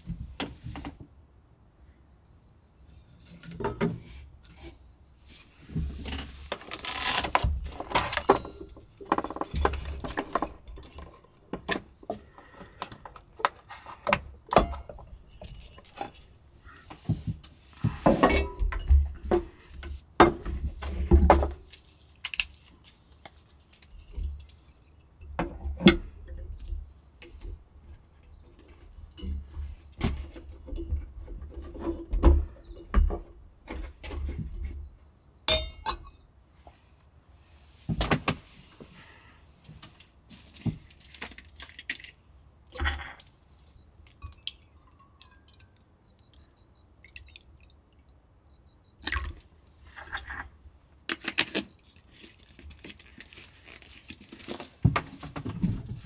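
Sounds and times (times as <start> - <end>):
metal cookware clinking and rattling: 35.5 - 36.1.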